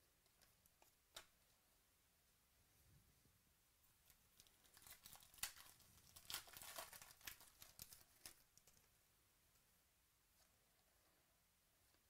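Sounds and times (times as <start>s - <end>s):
foil wrapper tearing and crinkling: 4.4s - 8.4s.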